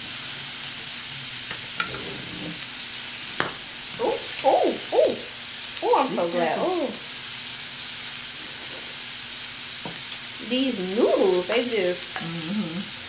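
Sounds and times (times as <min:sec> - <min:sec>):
food sizzling on a grill: 0:00.0 - 0:13.0
person's voice: 0:05.8 - 0:07.0, 0:10.4 - 0:12.9.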